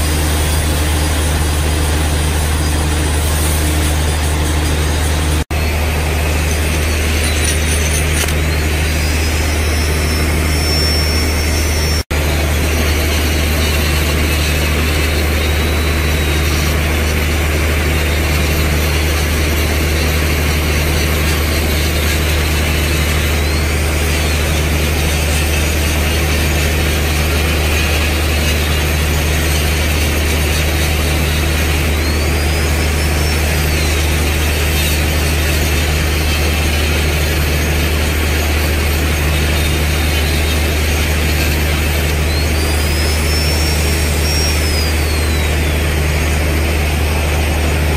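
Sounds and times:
electric grinder grinding: 0.0 - 47.9.

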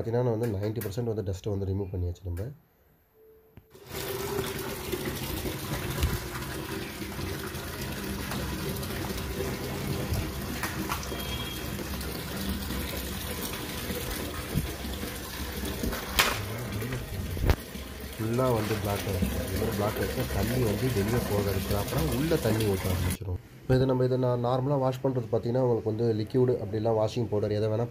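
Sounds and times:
water running: 3.7 - 23.2.

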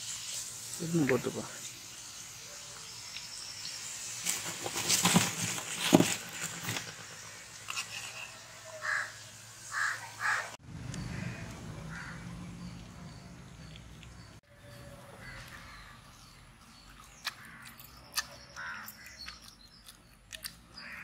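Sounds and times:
crows cawing: 8.7 - 12.3, 15.2 - 16.0, 17.4 - 17.8, 18.6 - 19.2, 20.8 - 21.0.

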